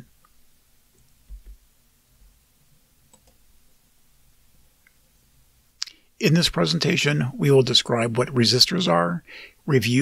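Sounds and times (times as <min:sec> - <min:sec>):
faint clicks: 0:03.1 - 0:03.4.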